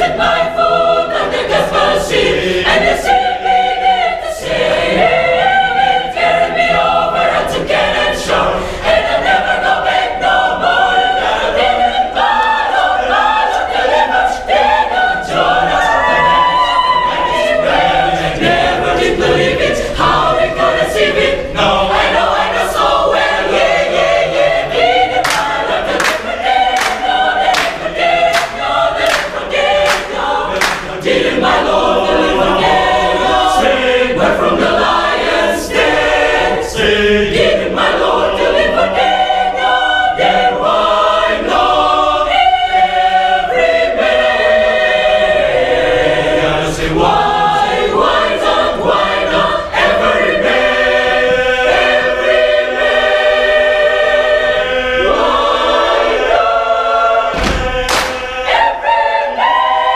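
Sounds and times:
choir singing a cappella: 0:00.0 - 0:59.9
hand claps: 0:25.2 - 0:31.2, 0:57.4 - 0:58.4.

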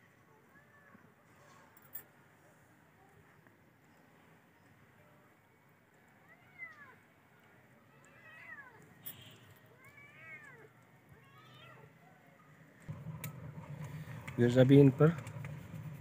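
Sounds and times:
cat meowing faintly: 0:09.7 - 0:12.5.

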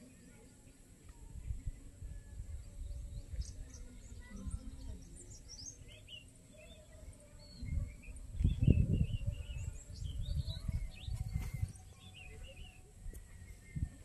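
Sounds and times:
small birds chirping: 0:00.0 - 0:14.0
low rumbling microphone noise: 0:07.6 - 0:14.0.

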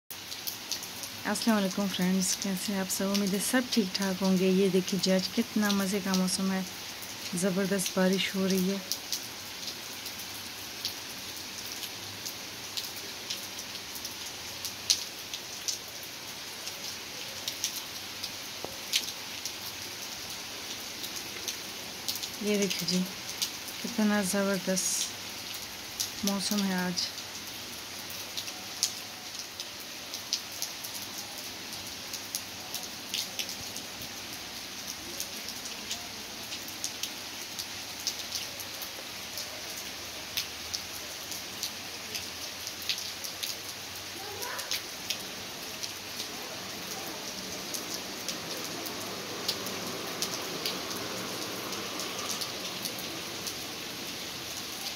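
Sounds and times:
close raindrops ticking: 0:00.1 - 0:54.9
heavy rain on stone tiles: 0:00.1 - 0:54.9.

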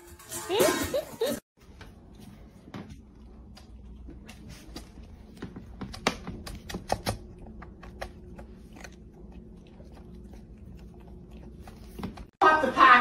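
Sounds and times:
cat crunching dry kibble: 0:06.9 - 0:12.0.

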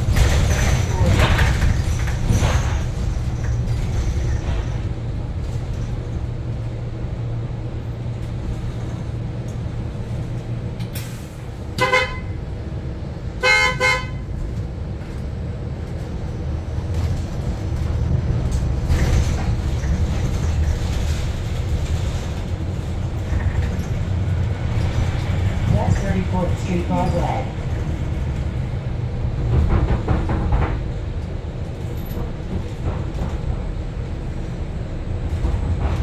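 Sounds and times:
bus interior rumble: 0:00.0 - 0:36.0
vehicle horn honking: 0:11.8 - 0:12.4, 0:13.4 - 0:14.3.

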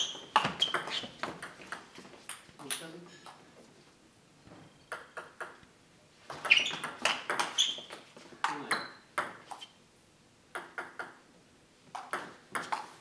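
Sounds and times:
table tennis ball hits: 0:00.0 - 0:03.4, 0:04.9 - 0:05.6, 0:06.3 - 0:09.6, 0:10.5 - 0:11.2, 0:11.9 - 0:13.0.

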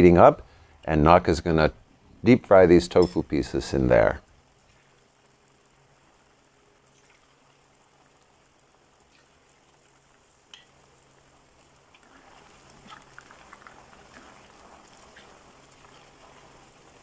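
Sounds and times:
oil crackles: 0:04.2 - 0:17.0
tofu sizzling in oil: 0:04.2 - 0:17.0.

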